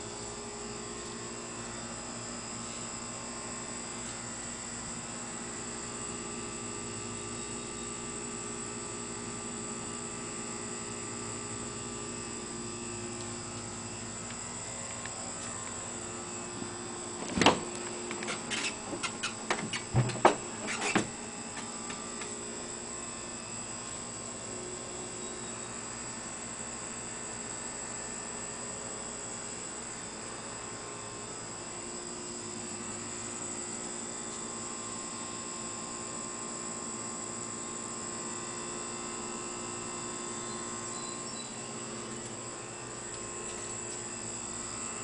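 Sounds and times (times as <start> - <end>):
steady background hum: 0.0 - 35.5, 38.2 - 45.0
bonnet latch clicks and knocks: 17.2 - 22.3.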